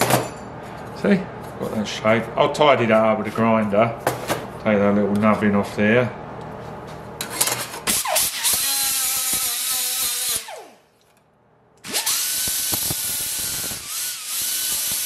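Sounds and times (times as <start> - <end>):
angle grinder sanding steel: 8.1 - 10.5, 12.0 - 15.0.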